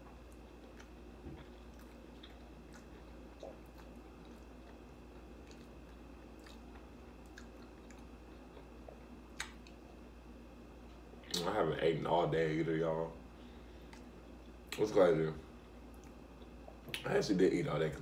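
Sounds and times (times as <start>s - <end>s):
faint chewing: 0.0s - 10.1s, 13.8s - 14.9s
wet mouth clicks: 9.4s - 9.8s.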